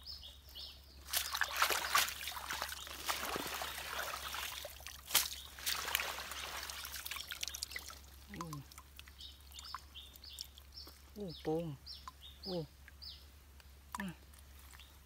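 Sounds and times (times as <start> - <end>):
water splashing and trickling: 0.0 - 15.0
sharp splashes: 1.0 - 10.8.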